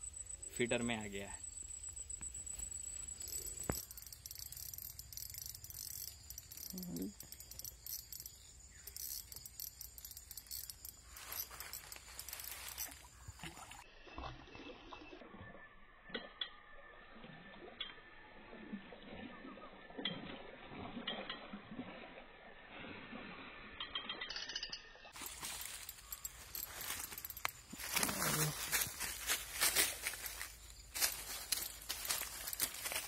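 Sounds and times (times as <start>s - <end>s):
insects chirring: 0.0s - 13.9s, 23.9s - 33.0s.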